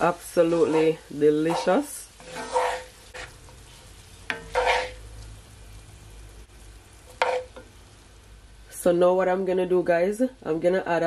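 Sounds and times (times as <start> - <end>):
wooden spoon scraping a pan: 0.0 - 5.1, 7.1 - 7.7
faint sizzle: 0.0 - 11.0.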